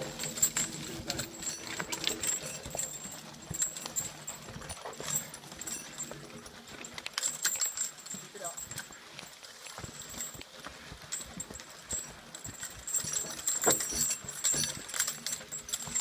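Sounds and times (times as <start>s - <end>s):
log dragging: 0.0s - 8.4s
footsteps on dirt: 0.0s - 16.0s
horse hooves on dirt: 0.0s - 16.0s.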